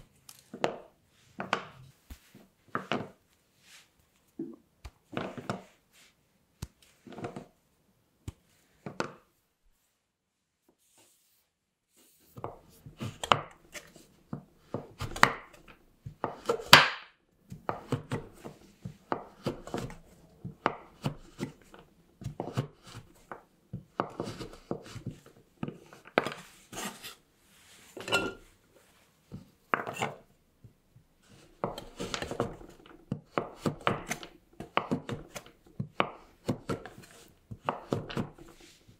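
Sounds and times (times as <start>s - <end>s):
knife chopping on wooden board: 14.6s - 23.1s, 23.7s - 25.2s, 31.6s - 38.5s.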